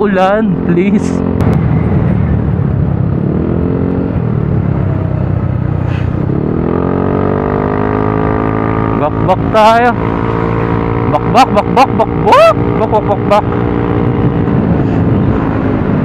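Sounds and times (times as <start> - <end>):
motorcycle engine running: 0.2 - 16.0
wind rumbling on microphone: 1.1 - 11.1, 13.4 - 16.0.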